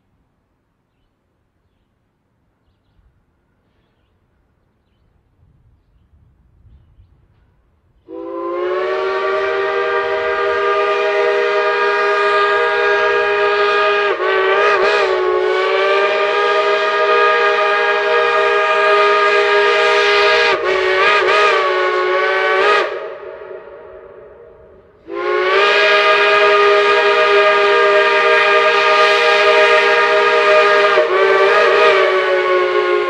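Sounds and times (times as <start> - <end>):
steam whistle blowing: 8.1 - 33.0.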